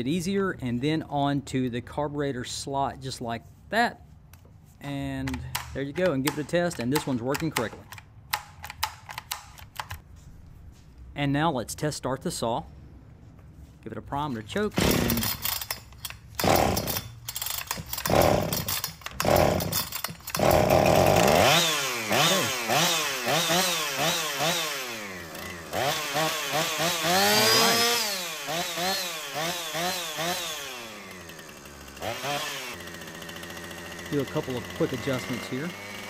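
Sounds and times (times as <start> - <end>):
recoil starter pulls: 14.7 - 36.0
chainsaw engine revving: 14.8 - 15.7, 16.4 - 36.0.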